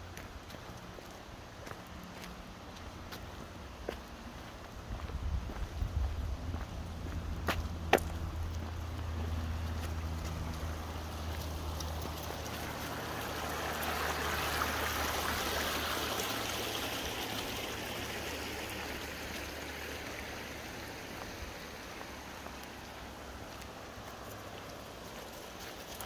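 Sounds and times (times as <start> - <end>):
river rushing over stones: 6.5 - 26.0.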